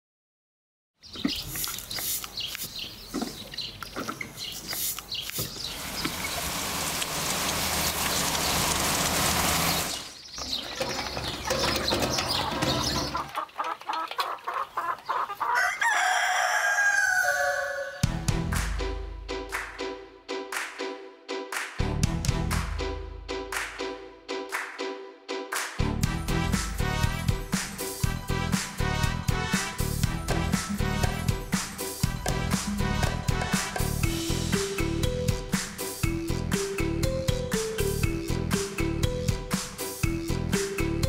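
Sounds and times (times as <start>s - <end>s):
chickens clucking: 9.6s - 18.1s.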